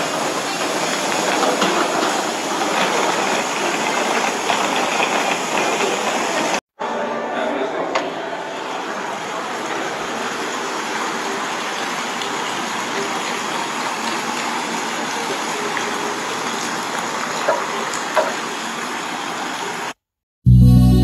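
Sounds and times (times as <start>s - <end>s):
fountain water rushing: 0.0s - 6.6s, 8.5s - 20.0s
music: 20.5s - 21.0s.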